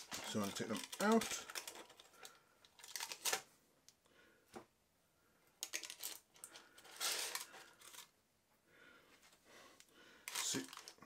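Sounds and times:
tongs clicking and scraping in basket: 0.0s - 2.2s.

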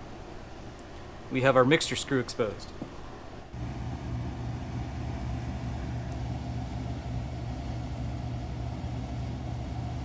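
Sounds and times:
low machine hum: 3.5s - 10.0s.

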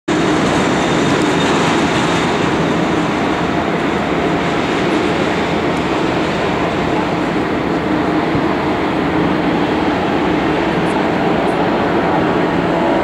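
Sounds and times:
jet engines at take-off thrust: 0.1s - 13.0s.

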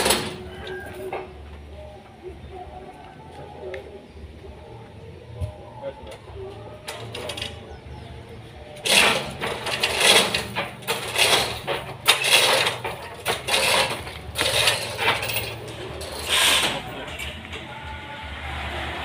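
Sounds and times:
loud clattering and cracking: 0.0s - 1.3s, 8.8s - 17.7s.

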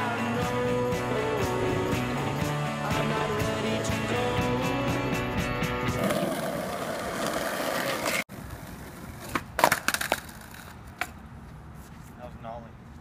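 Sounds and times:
music: 0.0s - 6.2s
skateboard rolling on asphalt: 6.0s - 11.2s
skateboard clacks and impacts: 9.2s - 11.2s.

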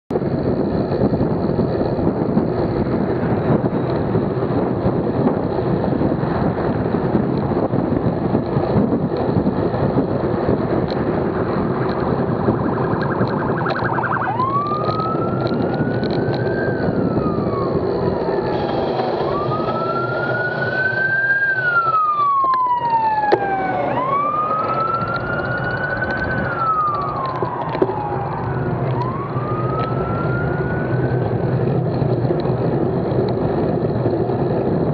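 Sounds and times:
wind and road rush: 0.1s - 34.9s
police siren wailing: 9.9s - 32.0s.

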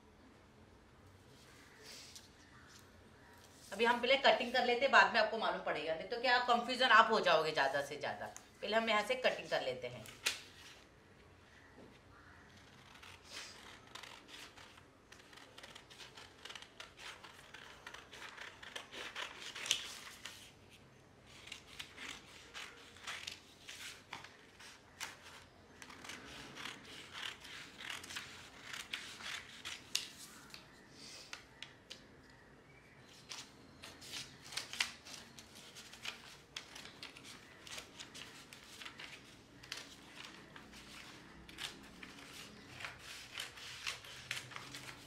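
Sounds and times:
scissors snipping paper: 12.6s - 20.3s, 21.3s - 30.7s, 33.4s - 45.0s.

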